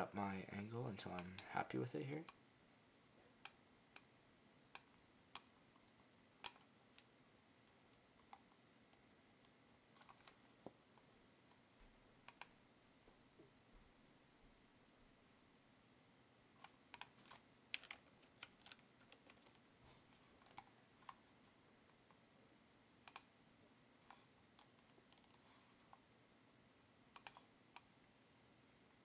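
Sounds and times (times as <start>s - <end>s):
low room hiss: 0.0s - 29.0s
computer mouse clicking: 3.4s - 4.1s, 4.7s - 7.1s, 7.7s - 8.6s, 9.4s - 10.4s, 12.2s - 12.6s, 16.6s - 21.2s, 23.0s - 23.3s, 24.1s - 26.0s, 27.1s - 27.9s.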